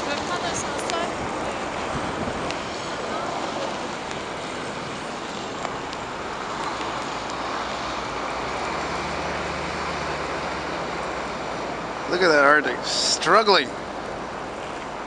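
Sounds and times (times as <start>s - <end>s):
storm wind rushing: 0.0s - 8.6s
diesel engines running: 0.0s - 15.0s
street traffic: 0.0s - 15.0s.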